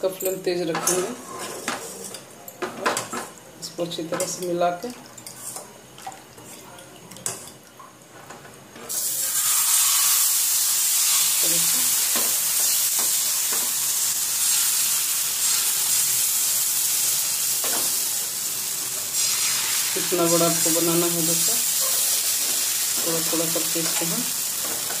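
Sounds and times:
batter sizzling on a griddle: 8.9 - 25.0.

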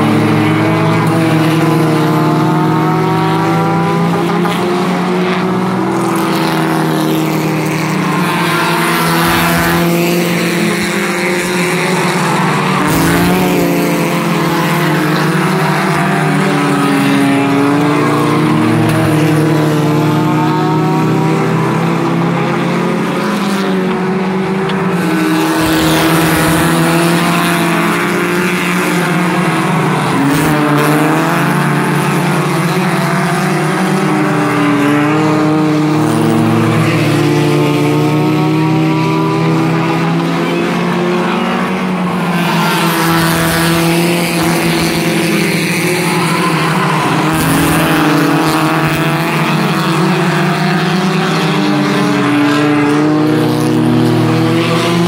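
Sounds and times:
race car engines running: 0.0 - 55.0
car passing close by: 41.6 - 55.0.

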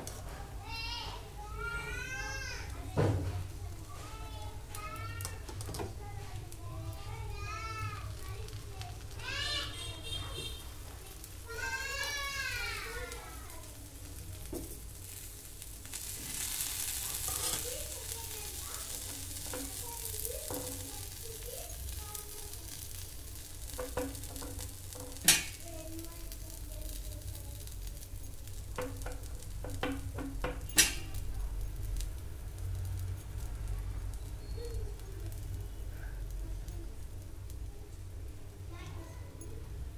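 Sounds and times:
egg sizzling on hot griddle: 0.0 - 39.9
spoon scraping griddle: 15.9 - 25.6.

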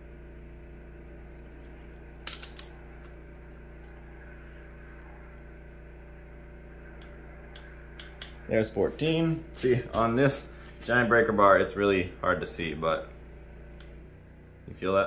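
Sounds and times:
steady hum: 0.0 - 15.0
wrench and socket clicking: 2.3 - 2.7.

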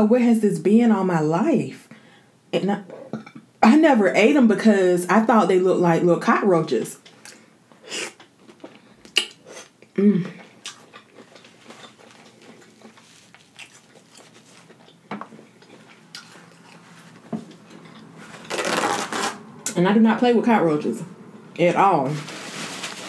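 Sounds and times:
person chewing and sucking: 7.2 - 19.1
wet mouth smacks and clicks: 9.0 - 9.4
person humming: 10.0 - 10.4.

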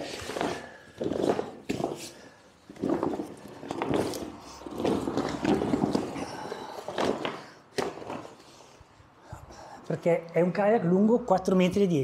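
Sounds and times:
stiff fabric rustling and scraping: 0.0 - 8.9.

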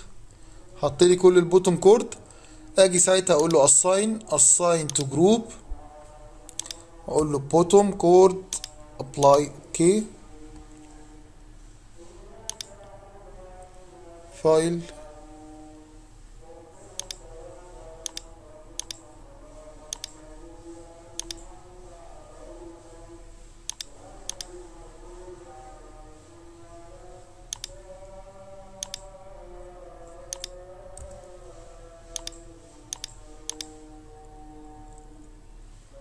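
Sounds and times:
computer mouse clicking: 3.4 - 3.6, 4.9 - 5.2, 6.5 - 6.8, 8.5 - 9.4, 12.5 - 12.8, 17.0 - 17.2, 18.0 - 19.0, 19.9 - 20.2, 21.2 - 21.5, 23.7 - 24.5, 27.5 - 27.8, 28.8 - 29.1, 30.3 - 31.1, 32.2 - 33.8.

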